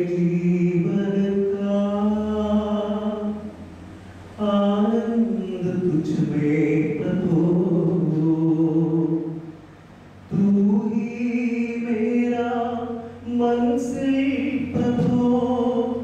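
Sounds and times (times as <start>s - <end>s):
man singing unaccompanied: 0.0s - 9.6s, 10.2s - 16.0s.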